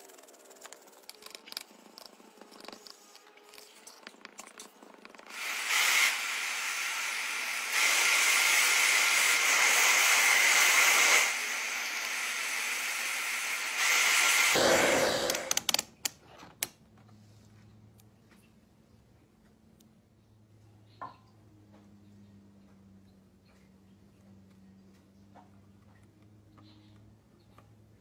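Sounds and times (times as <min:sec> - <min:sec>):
air jet hissing: 0:05.3 - 0:15.6.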